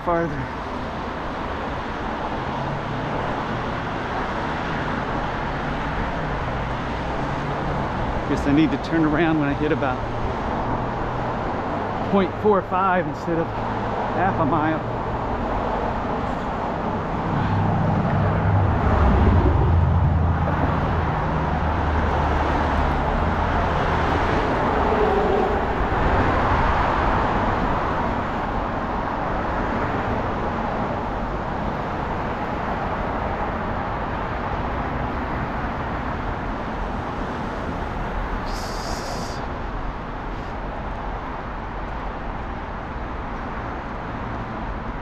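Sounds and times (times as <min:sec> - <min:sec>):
road and tyre noise: 0:00.0 - 0:45.0
car passing: 0:00.1 - 0:45.0
vehicle engine passing: 0:13.4 - 0:31.2.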